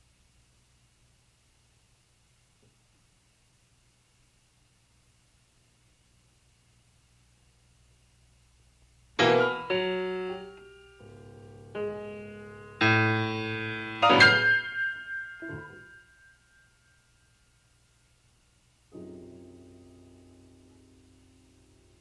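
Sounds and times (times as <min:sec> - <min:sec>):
piano chords ringing: 0:09.2 - 0:17.4, 0:18.9 - 0:22.0.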